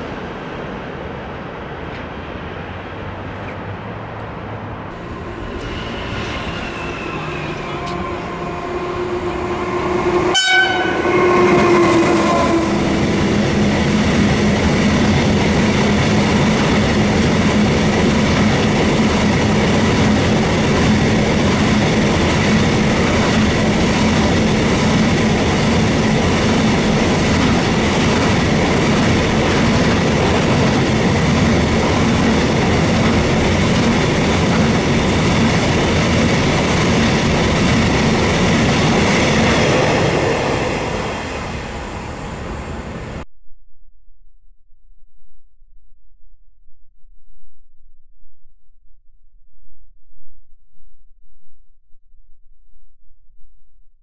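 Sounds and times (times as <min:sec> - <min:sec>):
locomotive horn: 0:05.0 - 0:13.1
train wheels clattering on rails: 0:12.8 - 0:41.5.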